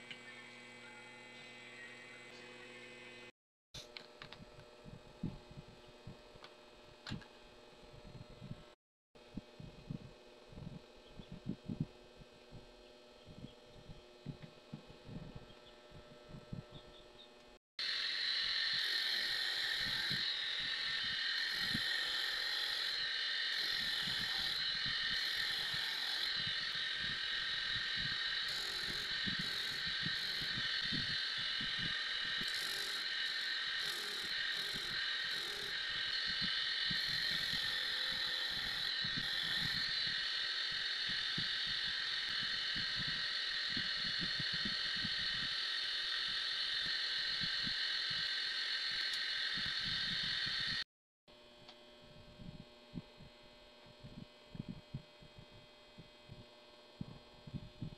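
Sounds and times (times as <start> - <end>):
disc sander whine: 0.0 - 3.3, 9.6 - 50.8.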